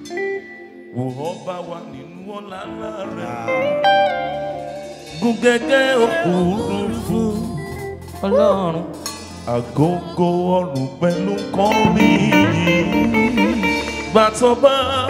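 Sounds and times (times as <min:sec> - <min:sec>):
guitar: 0:00.0 - 0:15.0
person singing: 0:00.0 - 0:15.0
worship band music: 0:00.0 - 0:15.0.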